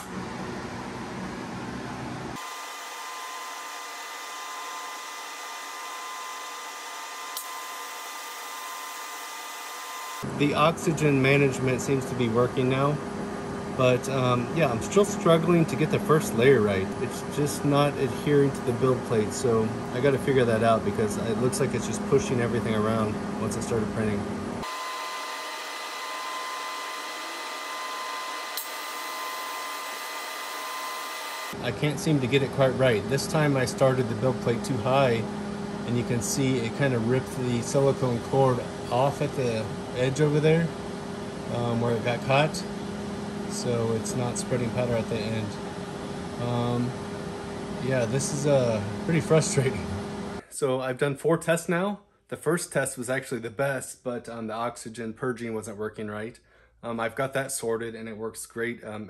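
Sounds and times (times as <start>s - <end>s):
thin steady whine: 0.0s - 50.7s.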